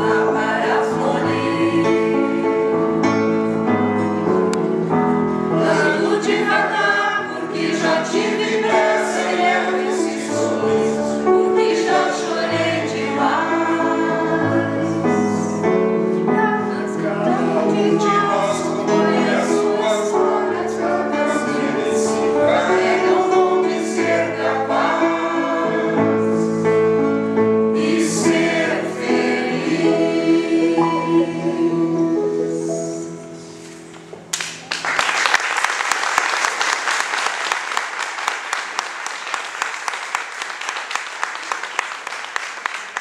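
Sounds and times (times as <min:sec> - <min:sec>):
men singing in harmony: 0:05.5 - 0:15.8, 0:16.7 - 0:26.8, 0:27.8 - 0:33.2
audience applause: 0:34.3 - 0:43.0.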